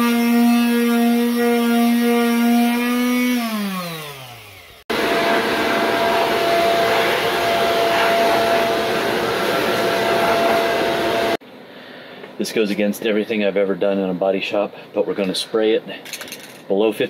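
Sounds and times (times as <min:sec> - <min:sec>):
electric palm sander running: 0:00.0 - 0:11.4
loud machine rushing noise: 0:04.9 - 0:11.4.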